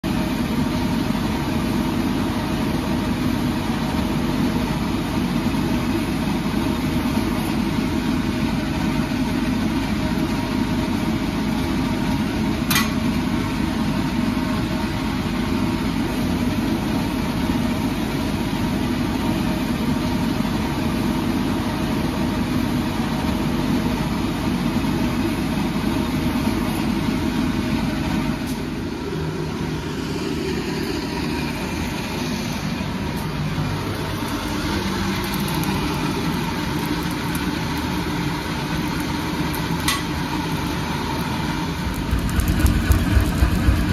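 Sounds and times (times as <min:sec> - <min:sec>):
forge air blower rushing drone: 0:24.3 - 0:36.9, 0:37.5 - 0:43.9.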